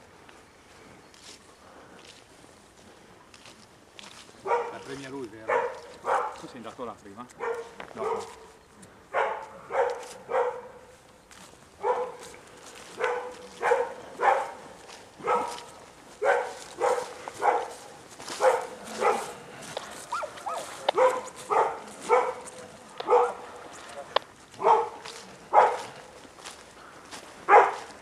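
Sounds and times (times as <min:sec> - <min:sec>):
dog barking: 0:04.4 - 0:06.4, 0:07.4 - 0:10.9, 0:11.8 - 0:12.3, 0:13.0 - 0:19.4, 0:20.1 - 0:23.6, 0:24.6 - 0:26.1, 0:27.5 - 0:27.9.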